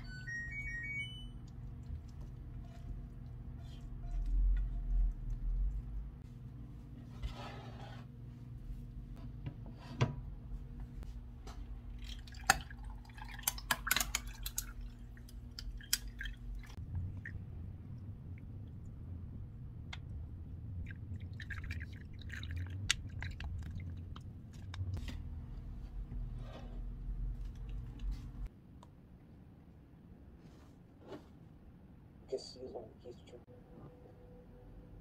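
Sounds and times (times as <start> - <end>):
coffee pouring: 11.9 - 16.8, 20.9 - 24.0.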